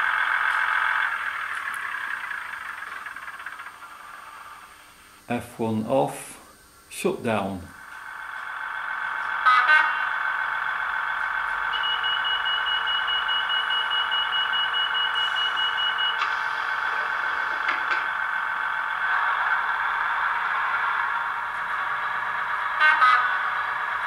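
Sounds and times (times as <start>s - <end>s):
diesel engine drone from small speaker: 0.0s - 6.3s, 7.6s - 24.0s
rapid high beeping: 11.6s - 16.2s.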